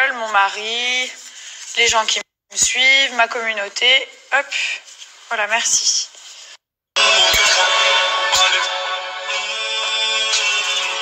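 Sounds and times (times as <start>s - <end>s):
music playing: 7.0s - 11.0s.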